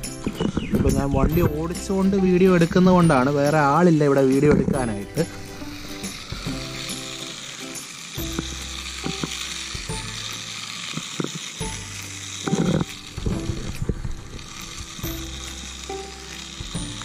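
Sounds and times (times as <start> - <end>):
small clicks: 0.0 - 3.1, 4.2 - 17.0
steady hiss: 0.0 - 17.0
toy car motor whirring: 0.0 - 17.0.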